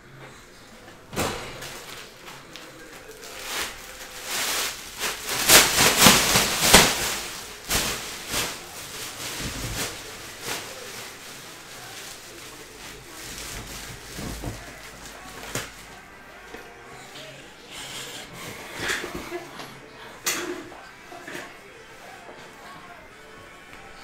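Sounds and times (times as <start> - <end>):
plastic bag rustling: 1.5 - 16.2.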